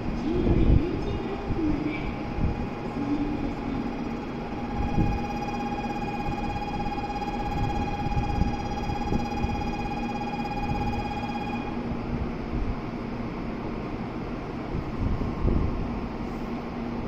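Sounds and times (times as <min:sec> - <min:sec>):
low hum and rumble: 0:00.0 - 0:17.0
steady high electronic tone: 0:02.0 - 0:11.9.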